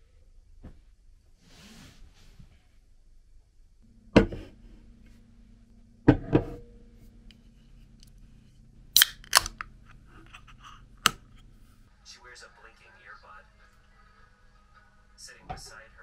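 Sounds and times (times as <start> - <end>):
can ring-pull cracking open: 9.0 - 11.2.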